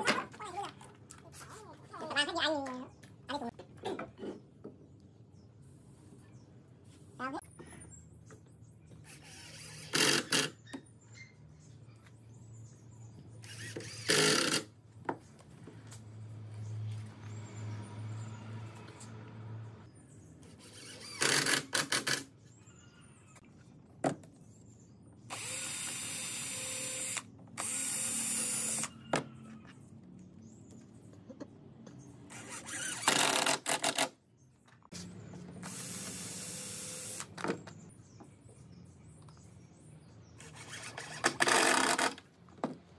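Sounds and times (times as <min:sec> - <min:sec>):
cordless drill driving screws into wood: 0:09.0 - 0:10.6, 0:13.4 - 0:14.7, 0:20.6 - 0:22.3, 0:25.3 - 0:28.9, 0:32.3 - 0:34.2, 0:35.6 - 0:37.6, 0:40.4 - 0:42.2.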